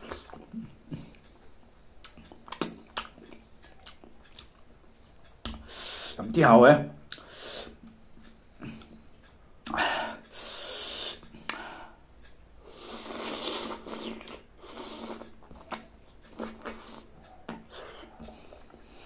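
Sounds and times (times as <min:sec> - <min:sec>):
wet slurping and sucking: 0:12.7 - 0:15.6.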